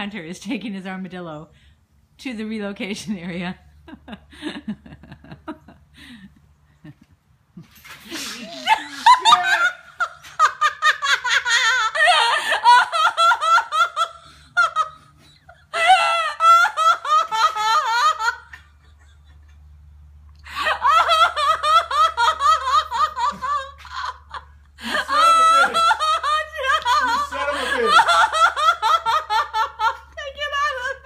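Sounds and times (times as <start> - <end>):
people laughing hard: 8.1 - 19.7, 20.5 - 31.0.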